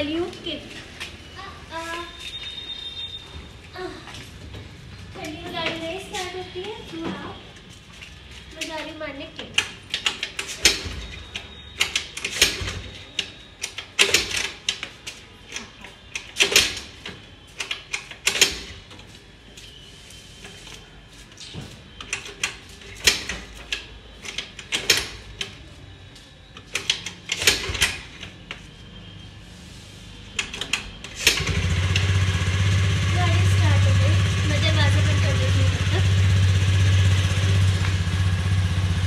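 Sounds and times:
scooter kick-start clattering: 30.6 - 39.0.

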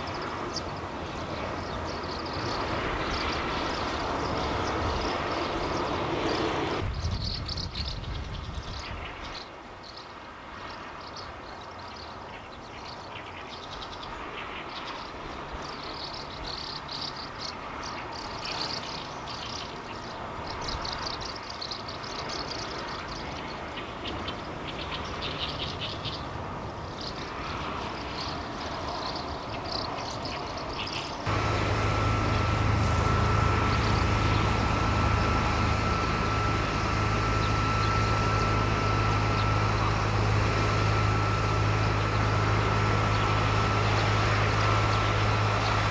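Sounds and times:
mechanical hum with high whine: 0.0 - 45.9
small birds chirping: 0.0 - 45.9
steady low rumble: 30.6 - 45.9.

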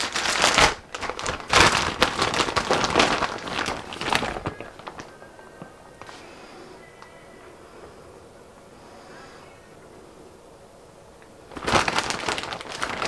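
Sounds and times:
plastic packaging crinkling: 0.0 - 6.3, 11.2 - 13.0.

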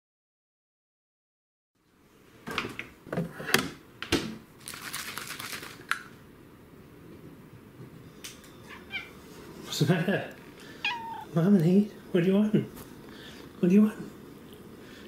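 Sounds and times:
can rattling: 4.6 - 6.1.

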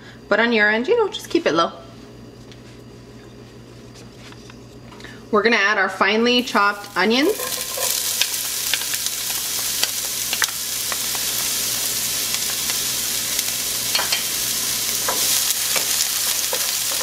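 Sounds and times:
onion sizzling in oil: 6.3 - 17.0.

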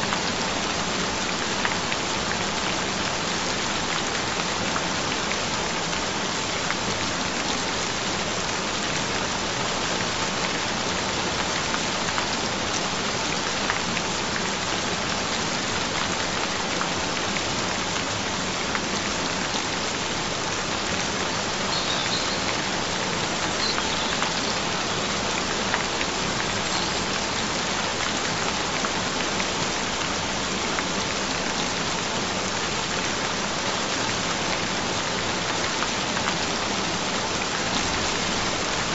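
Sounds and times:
steady rain falling: 0.0 - 38.9
distinct raindrops: 21.2 - 28.3.

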